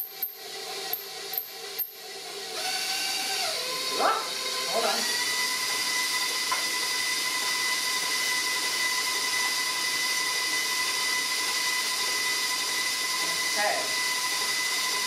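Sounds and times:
stand mixer whipping: 0:00.0 - 0:15.0.

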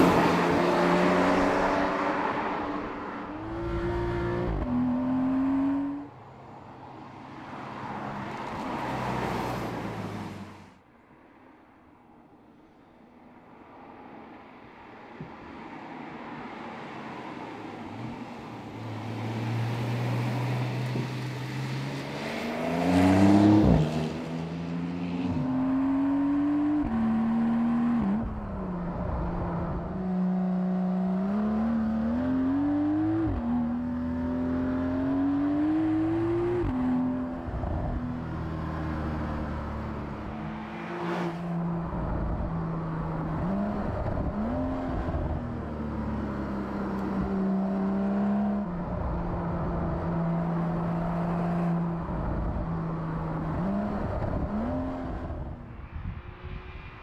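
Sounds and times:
sports car passing by: 0:00.0 - 0:06.1, 0:06.7 - 0:10.7, 0:16.4 - 0:57.0
car engine accelerating with upshifts: 0:00.0 - 0:06.2, 0:17.8 - 0:57.0.

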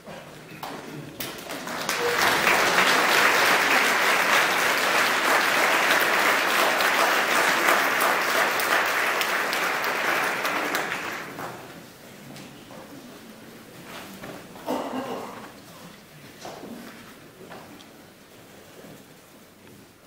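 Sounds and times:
audience applauding: 0:01.2 - 0:11.5.

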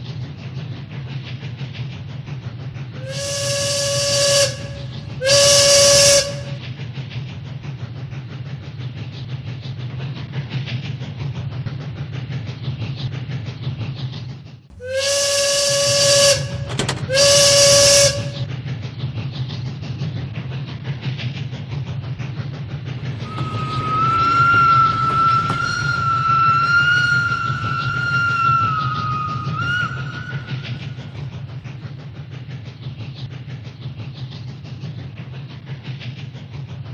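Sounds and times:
electronic steam-whistle blasts: 0:03.0 - 0:06.6, 0:14.8 - 0:18.5, 0:23.0 - 0:31.5
toy train motor drone: 0:14.8 - 0:18.4.

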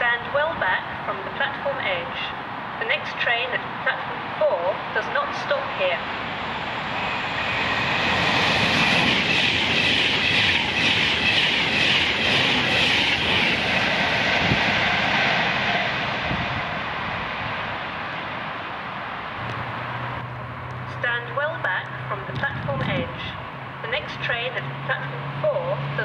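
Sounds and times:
electric train passing at speed: 0:00.0 - 0:26.0.

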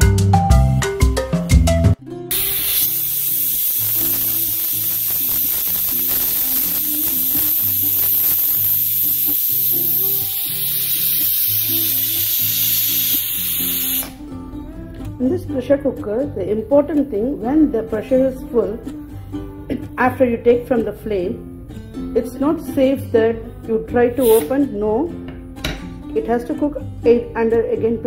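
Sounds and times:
quiet background music: 0:01.7 - 0:28.0
pressure cooker steam hiss: 0:02.3 - 0:14.2, 0:24.2 - 0:24.5.

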